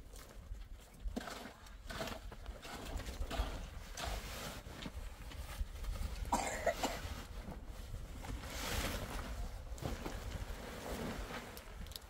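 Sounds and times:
tent fabric rustling: 0:06.8 - 0:11.8.

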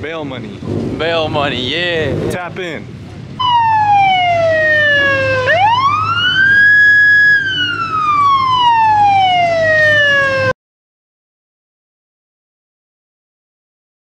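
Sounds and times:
police siren wailing: 0:03.4 - 0:10.6.

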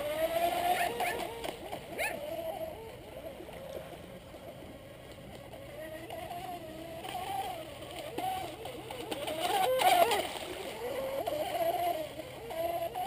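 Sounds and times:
electric boat motor whine: 0:00.0 - 0:13.0.

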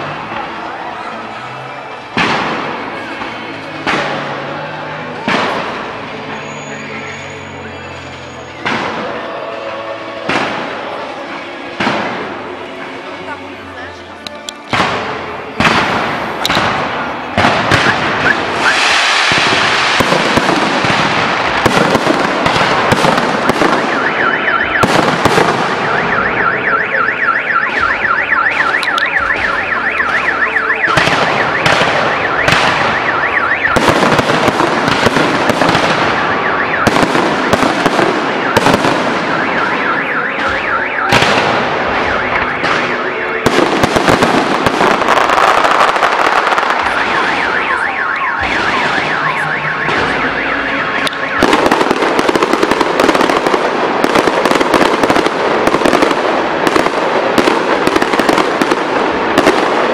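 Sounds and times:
fireworks bursting and crackling: 0:00.0 - 0:59.9.

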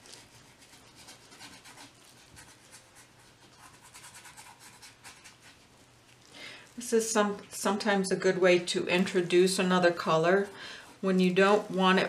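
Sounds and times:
paintbrush scratching on canvas: 0:00.0 - 0:06.2, 0:09.0 - 0:12.0.

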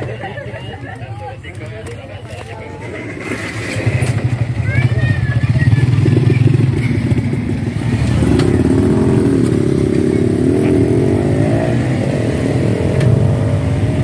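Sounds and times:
small motorcycle engines running: 0:00.0 - 0:14.0
motorcycle revving and pulling away: 0:02.8 - 0:14.0.

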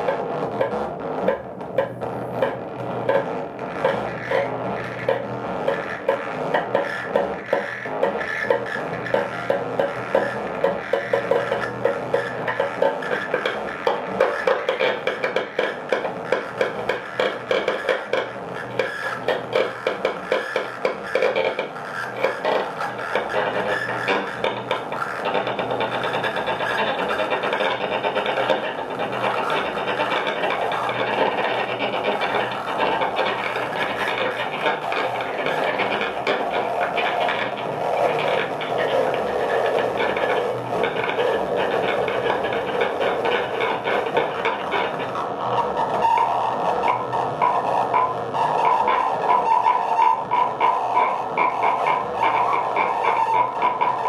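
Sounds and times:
low electronic hum: 0:00.0 - 0:14.2
cello clicks and scraping: 0:00.0 - 0:54.0
grainy feedback buzzing: 0:00.0 - 0:54.0.

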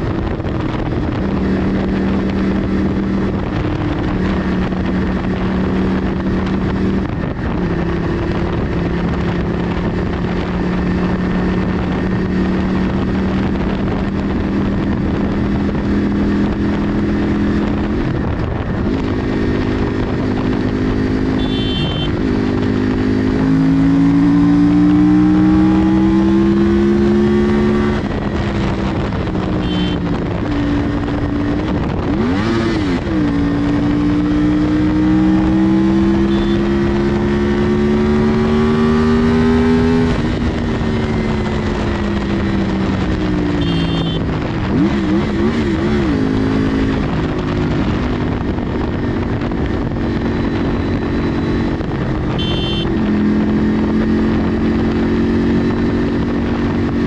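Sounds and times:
motorcycle engine cruising: 0:00.0 - 0:57.0
wind rushing over microphone: 0:00.0 - 0:57.0.

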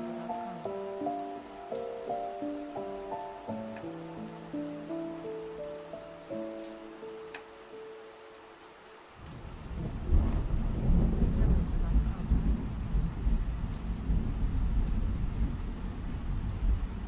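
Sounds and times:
rain falling: 0:00.0 - 0:17.0
thunder rumbling: 0:09.2 - 0:17.0.

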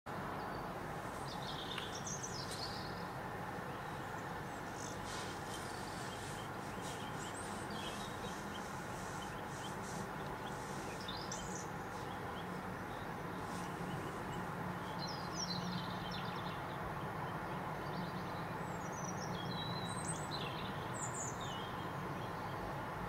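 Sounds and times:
small birds chirping: 0:00.1 - 0:22.9
outdoor background hiss: 0:00.1 - 0:23.0.

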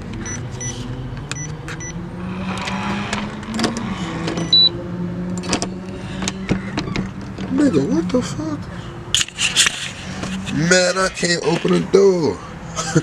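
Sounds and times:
short high beeps: 0:04.4 - 0:04.8.

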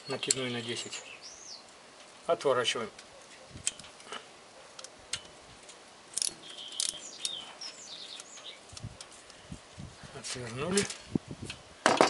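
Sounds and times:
small birds chirping: 0:00.0 - 0:02.2, 0:04.7 - 0:10.5
spanner clicking on a nut: 0:06.1 - 0:07.4.

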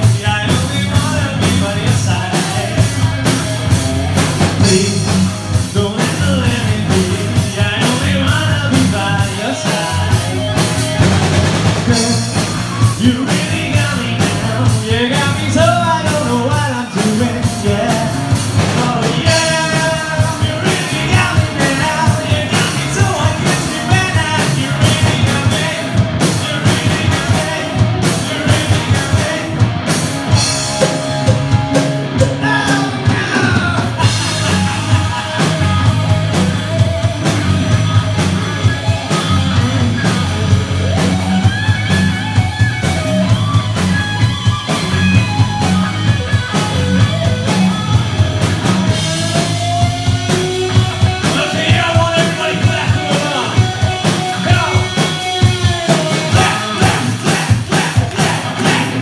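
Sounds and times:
man singing: 0:00.0 - 0:03.2, 0:04.4 - 0:10.8, 0:11.5 - 0:31.4, 0:32.1 - 0:38.3, 0:39.0 - 0:41.2, 0:48.8 - 0:59.0
bass guitar: 0:00.0 - 0:59.0
drum kit beat: 0:00.0 - 0:59.0
electric guitar: 0:00.0 - 0:59.0.

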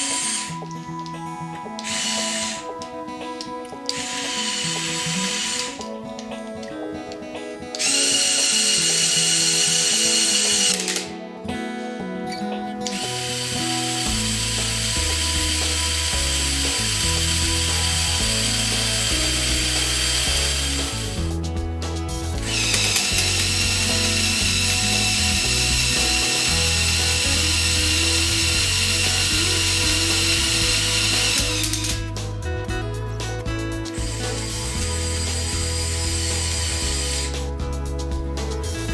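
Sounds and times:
small electric motors whining: 0:00.0 - 0:00.6, 0:01.8 - 0:02.8, 0:03.9 - 0:05.9, 0:07.8 - 0:11.1, 0:12.9 - 0:21.3, 0:22.4 - 0:32.0, 0:34.0 - 0:37.5
background music: 0:00.0 - 0:38.9.

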